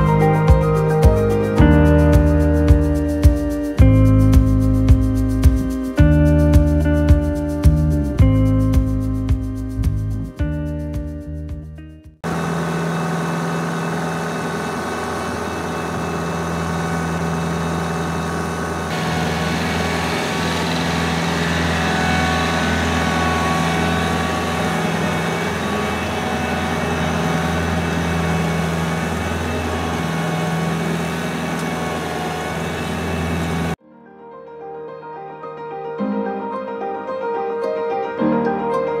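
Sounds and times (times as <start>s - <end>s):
tractor engine running under load: 12.2s - 33.8s
power harrow tilling soil: 12.3s - 33.8s.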